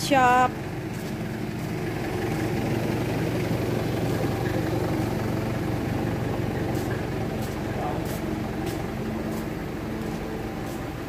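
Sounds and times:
workshop machinery humming: 0:04.2 - 0:11.0.

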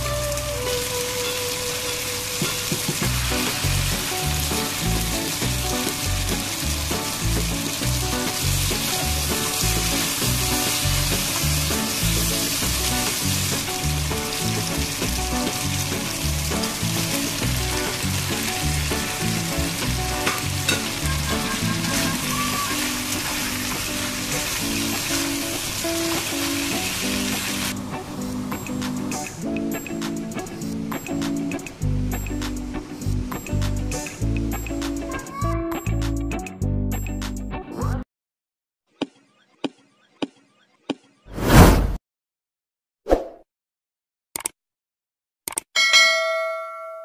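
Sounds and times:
food sizzling in a wok: 0:00.0 - 0:35.1
background music with bass line: 0:03.0 - 0:22.4, 0:28.6 - 0:38.0.

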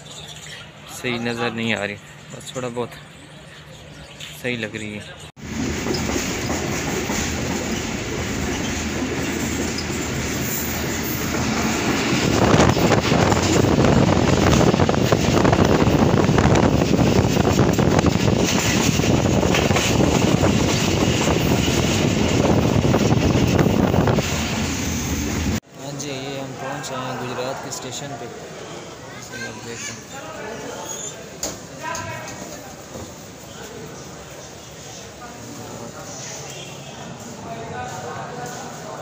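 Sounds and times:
train wheels rumbling on track: 0:05.4 - 0:25.6.

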